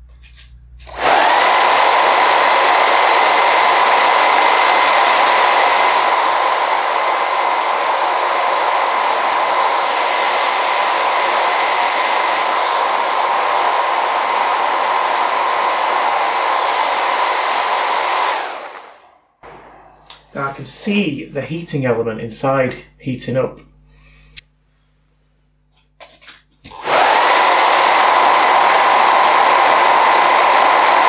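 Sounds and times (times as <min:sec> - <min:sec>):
hair dryer running: 0:00.8 - 0:20.3, 0:26.7 - 0:31.0.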